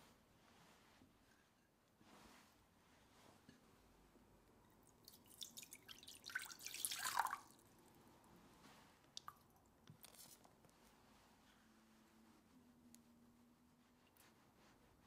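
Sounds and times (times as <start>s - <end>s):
faint drips into water: 4.7s - 7.6s, 9.1s - 9.7s
water pouring into a saucepan: 5.1s - 7.6s.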